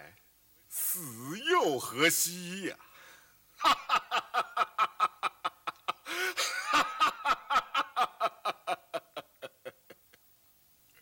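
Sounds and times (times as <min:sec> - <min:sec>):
man laughing rapidly: 0:03.6 - 0:10.2.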